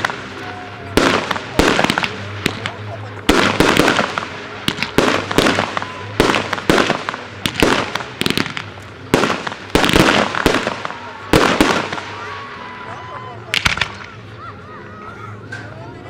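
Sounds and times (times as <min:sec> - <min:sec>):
firework shells bursting: 0:00.0 - 0:12.2, 0:13.5 - 0:14.2.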